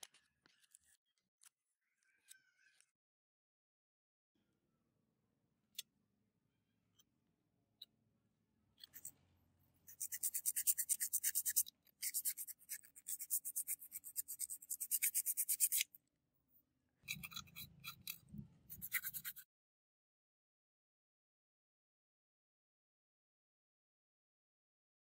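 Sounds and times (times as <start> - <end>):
hand scraping strokes: 9.9 - 15.8, 17.2 - 19.4.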